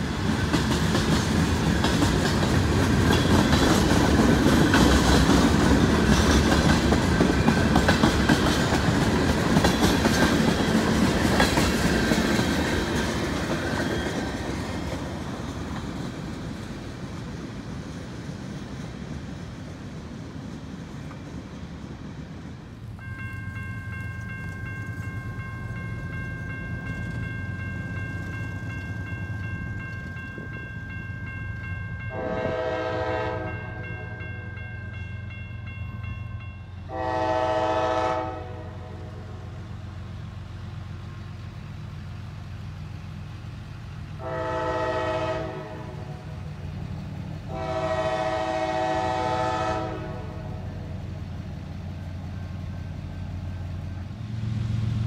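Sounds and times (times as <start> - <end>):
low rumble of train: 0.0 - 55.0
train air horn blasts: 32.1 - 34.2, 36.9 - 39.4, 44.2 - 46.3, 47.5 - 50.8.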